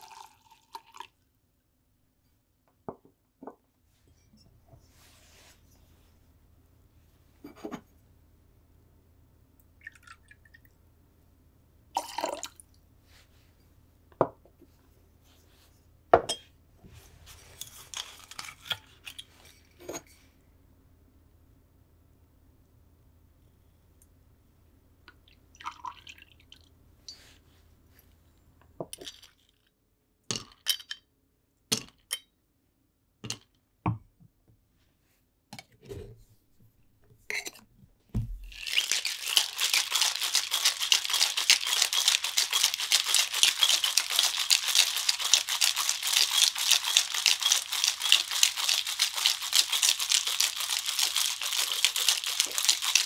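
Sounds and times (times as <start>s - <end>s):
ice rattling in metal shaker: 0.0s - 1.1s, 17.3s - 19.6s, 38.4s - 53.0s.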